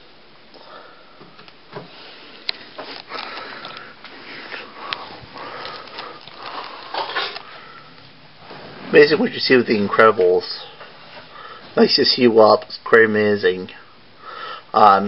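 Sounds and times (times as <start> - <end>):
breathing and sniffing: 1.8 - 8.0, 11.0 - 11.8, 14.2 - 14.7.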